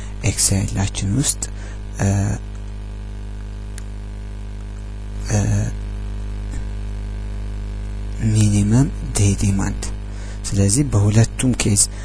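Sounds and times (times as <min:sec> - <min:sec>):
person's voice: 0:00.0 - 0:02.5, 0:05.2 - 0:05.8, 0:08.1 - 0:12.0
electrical mains hum: 0:00.0 - 0:12.0.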